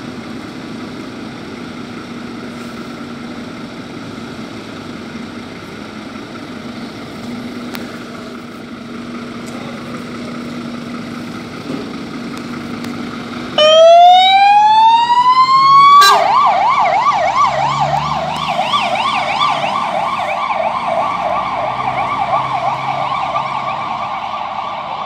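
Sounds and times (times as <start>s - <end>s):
truck engine running: 0.0s - 25.0s
fire engine siren: 13.2s - 25.0s.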